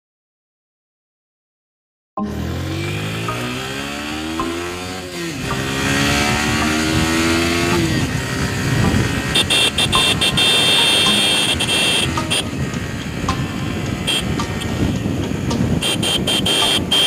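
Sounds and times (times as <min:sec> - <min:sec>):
motorcycle engine accelerating: 0:02.2 - 0:17.0
high steady whine: 0:09.2 - 0:17.0
wind rush: 0:12.4 - 0:17.0.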